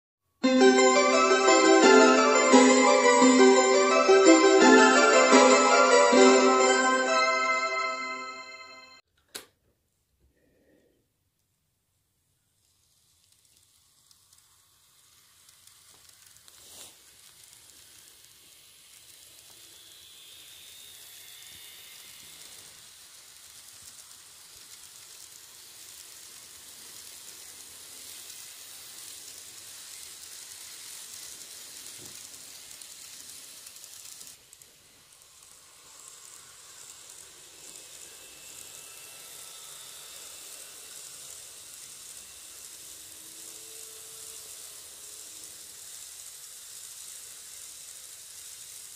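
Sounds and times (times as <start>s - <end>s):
model train rattling on track: 12.6s - 48.9s.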